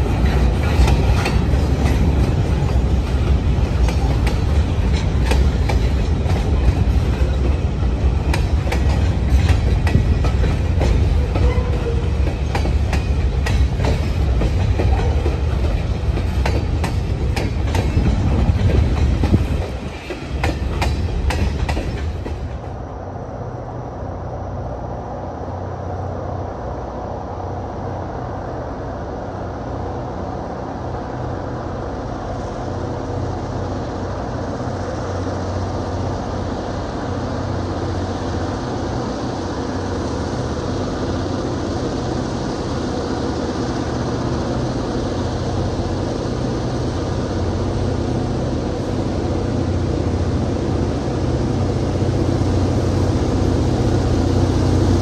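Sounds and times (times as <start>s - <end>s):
wheels clicking over rail joints: 0.0s - 22.7s
freight train rumbling past: 0.0s - 55.0s.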